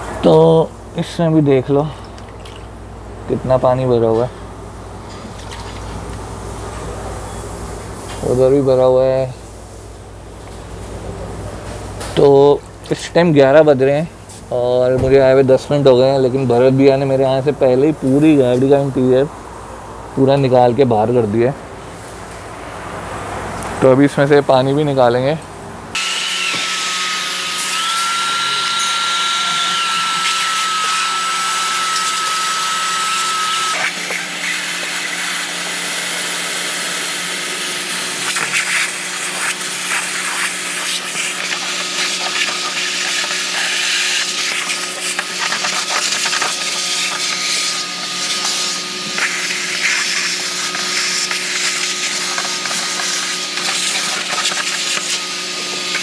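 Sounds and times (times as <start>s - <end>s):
wet vacuum whining: 26.0s - 56.0s.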